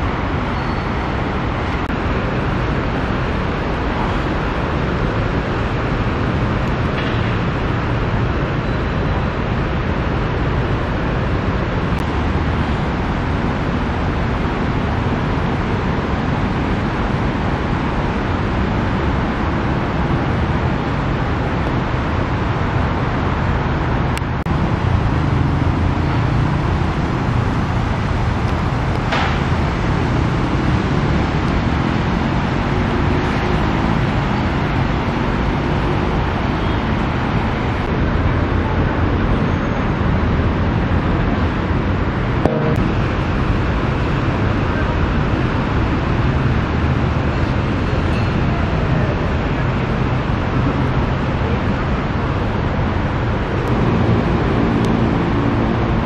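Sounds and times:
tyres hissing on wet road: 24.5 - 56.0
low engine rumble: 40.9 - 45.7.

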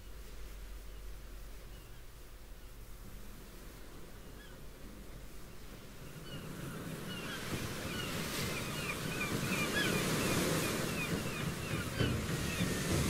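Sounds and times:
surf-like noise: 0.0 - 13.0
birds chirping: 5.5 - 13.0.

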